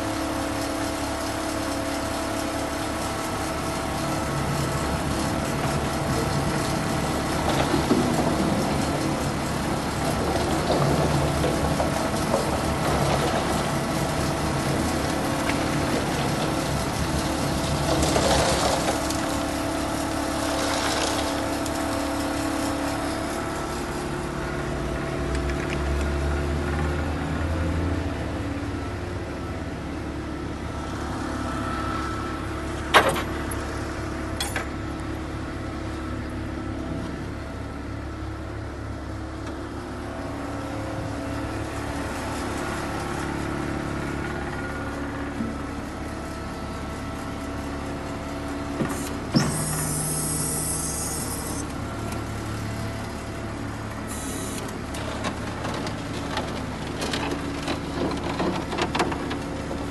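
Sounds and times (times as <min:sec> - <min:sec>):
diesel truck engine idling: 0:22.4 - 0:55.6.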